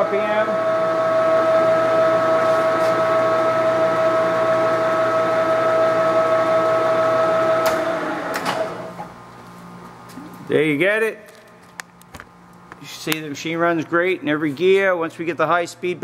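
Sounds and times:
lathe running with whine: 0.0 - 8.9.

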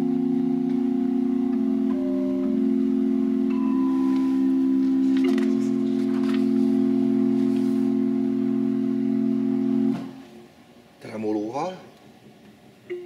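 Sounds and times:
low organ bass note: 0.0 - 10.0
pipe organ chord: 0.0 - 10.2.

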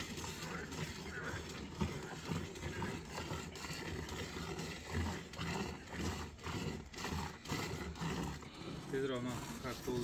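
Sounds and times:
milk squirting into metal pail: 0.0 - 10.0.

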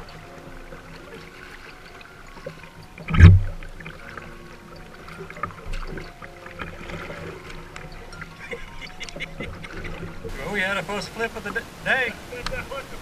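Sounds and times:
kayak paddling: 0.0 - 13.0
loud thump: 3.1 - 3.6.

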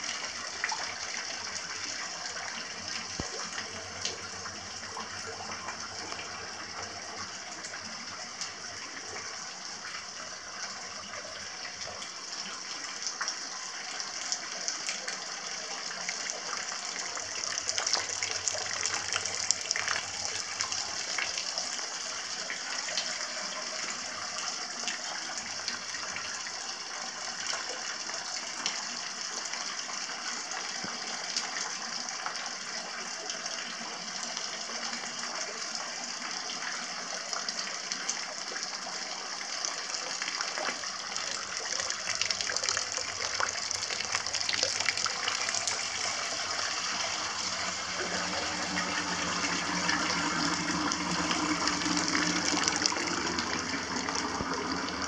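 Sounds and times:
water pouring from pipe into bath: 0.0 - 55.0.

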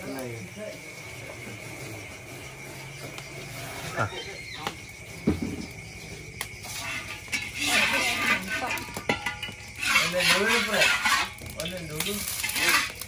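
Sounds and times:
metal spatula scraping a wok: 2.6 - 4.3, 6.6 - 13.0
metal on metal knocks: 6.9 - 11.4.

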